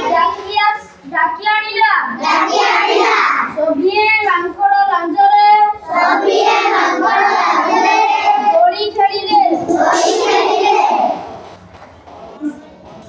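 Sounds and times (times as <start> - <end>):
children chanting in sing-song: 0.0 - 0.8, 2.0 - 4.0, 5.3 - 11.4.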